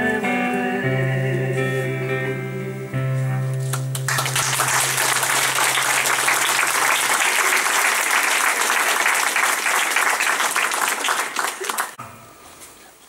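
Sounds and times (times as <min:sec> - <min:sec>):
audience applauding: 0:03.9 - 0:12.0
acoustic guitar chord ringing: 0:12.0 - 0:13.0.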